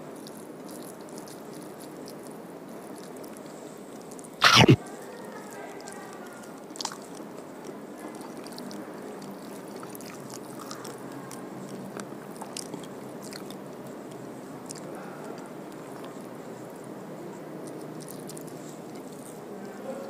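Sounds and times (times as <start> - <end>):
person chewing food: 4.4 - 4.8, 6.7 - 16.2
wet mouth clicks: 4.4 - 4.8.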